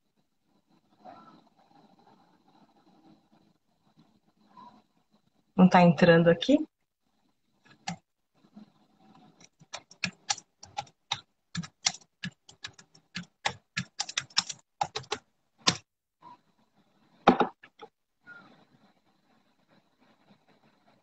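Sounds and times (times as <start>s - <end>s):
computer keyboard typing: 7.7s - 8.0s, 9.2s - 15.9s.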